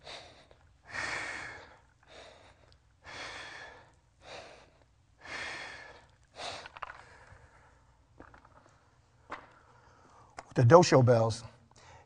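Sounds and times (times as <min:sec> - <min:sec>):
man breathing hard: 0:00.0 - 0:08.0, 0:11.7 - 0:12.0.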